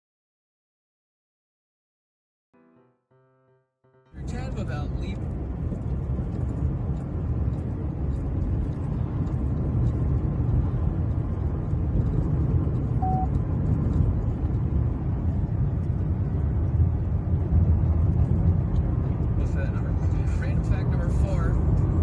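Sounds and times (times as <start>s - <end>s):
road and engine noise in car cabin: 4.2s - 22.0s
short beep: 13.0s - 13.3s.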